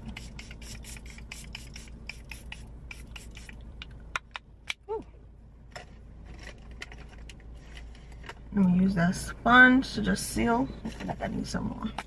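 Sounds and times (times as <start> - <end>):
rubbing and brushing strokes: 0.0 - 3.6.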